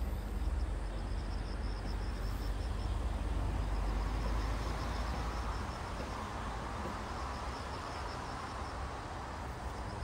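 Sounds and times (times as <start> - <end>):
insect chirping in pulses: 0.0 - 10.0.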